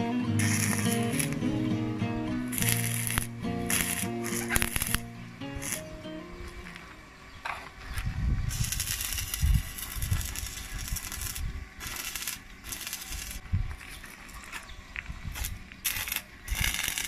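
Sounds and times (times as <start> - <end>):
welding arc crackling and hissing: 0.3 - 1.5, 2.4 - 6.0, 8.4 - 14.4, 15.2 - 17.0.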